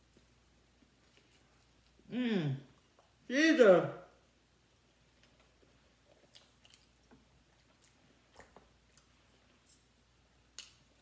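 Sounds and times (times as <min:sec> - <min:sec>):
chewing: 0:00.0 - 0:02.1, 0:05.1 - 0:11.0.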